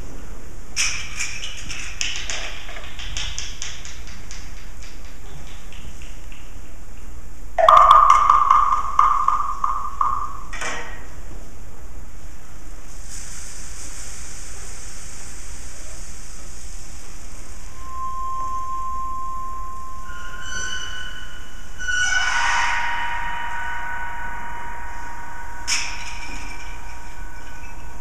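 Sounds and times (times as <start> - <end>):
soft steady high hiss: 0.0 - 28.0
held high tone: 17.7 - 28.0
pitched percussion ringing: 17.7 - 28.0.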